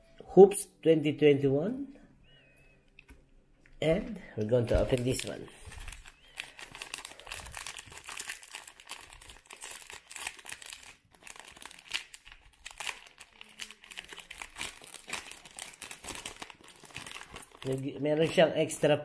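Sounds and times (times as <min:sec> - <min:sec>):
plastic wrapper crinkling: 0:04.5 - 0:18.9.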